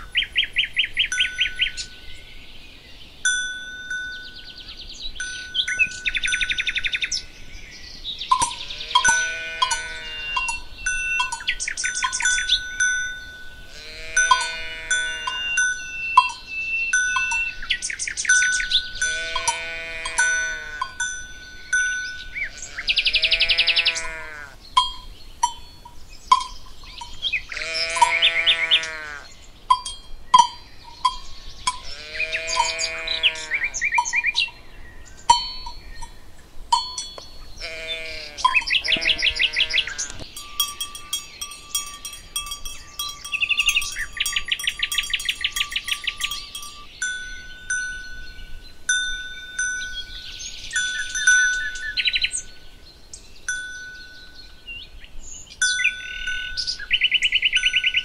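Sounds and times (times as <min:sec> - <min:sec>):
birds chirping: 0:00.0 - 0:58.0
bells ringing: 0:01.1 - 0:02.2, 0:03.2 - 0:07.3, 0:08.3 - 0:23.4, 0:24.8 - 0:28.7, 0:29.7 - 0:34.6, 0:35.3 - 0:52.6, 0:53.5 - 0:54.8, 0:55.6 - 0:56.9
livestock calling: 0:08.3 - 0:21.0, 0:22.0 - 0:25.5, 0:26.3 - 0:29.5, 0:30.3 - 0:34.6, 0:37.4 - 0:46.9.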